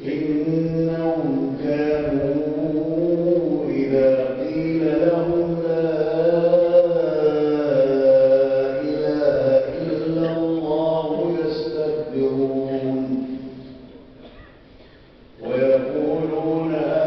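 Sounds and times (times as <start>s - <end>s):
man chanting melodic recitation: 0.0s - 13.9s, 15.4s - 17.0s.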